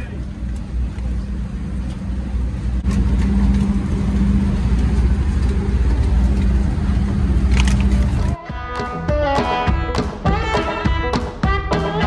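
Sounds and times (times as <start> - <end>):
heavy machinery engine droning: 0.0 - 8.4.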